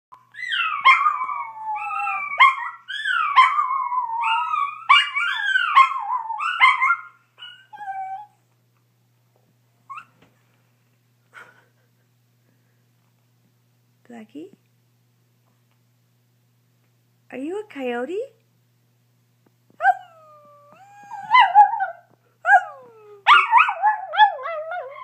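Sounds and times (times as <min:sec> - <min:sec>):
dog howling: 0:00.4 - 0:08.3, 0:19.8 - 0:25.0.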